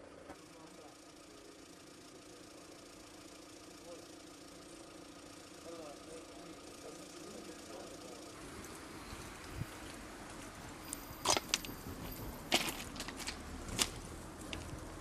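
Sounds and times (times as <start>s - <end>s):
faint engine idling: 0.0s - 15.0s
low background hum: 0.0s - 15.0s
footsteps crunching on gravel: 9.8s - 14.8s.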